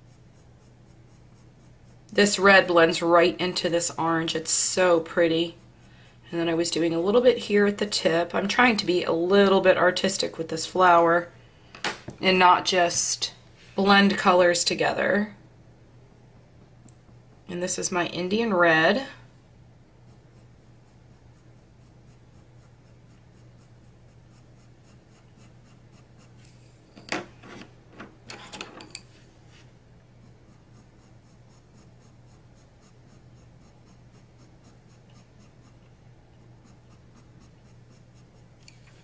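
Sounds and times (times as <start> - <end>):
colored pencil scratching on paper: 0.0 - 11.3, 20.0 - 26.7, 30.2 - 39.0.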